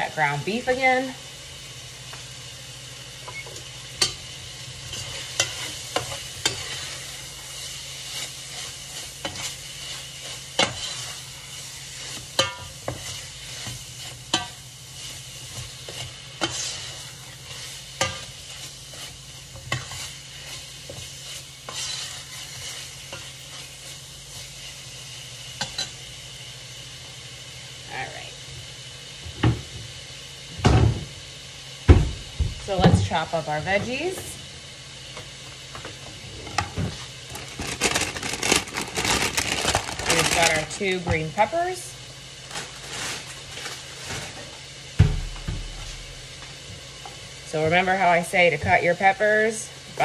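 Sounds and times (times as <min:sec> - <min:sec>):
meat sizzling in a pan: 0:00.0 - 0:50.0
utensil scraping against pan: 0:21.7 - 0:23.2.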